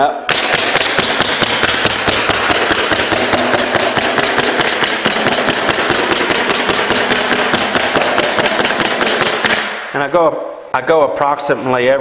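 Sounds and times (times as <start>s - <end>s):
steady running noise: 0.3s - 9.8s.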